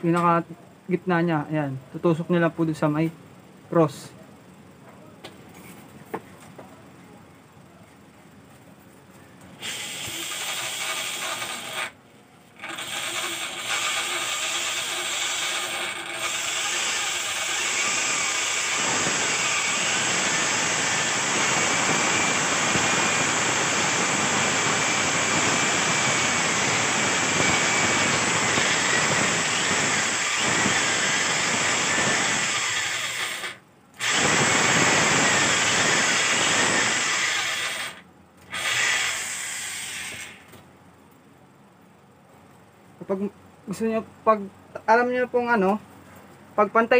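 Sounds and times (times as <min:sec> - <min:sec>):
electric drill boring into wood: 0:09.6 - 0:12.0, 0:12.6 - 0:40.5.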